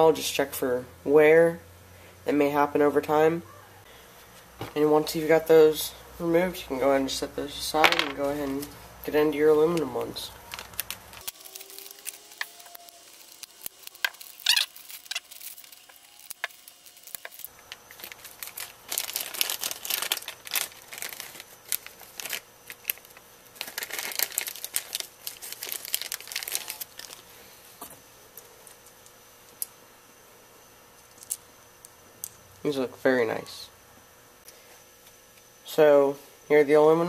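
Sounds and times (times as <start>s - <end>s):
plastic bag crinkling and tearing: 9.8s - 27.3s.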